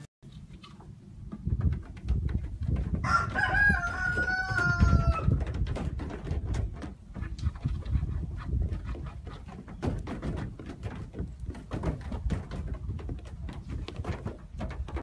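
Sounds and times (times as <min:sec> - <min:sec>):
scattered knocks: 0:01.3 - 0:08.0, 0:08.7 - 0:15.0
rooster crowing: 0:03.0 - 0:05.4.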